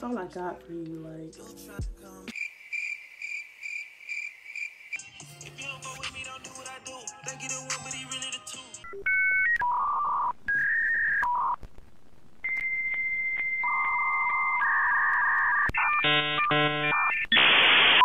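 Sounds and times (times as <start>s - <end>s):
long steady electronic tones: 12.4s - 18.0s.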